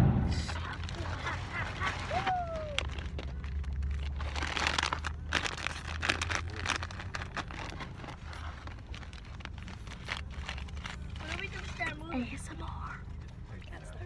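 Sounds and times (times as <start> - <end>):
car cabin rumble: 0.0 - 2.1
plastic bag crinkling: 0.5 - 12.0
paper wrapper rustling: 0.5 - 12.4.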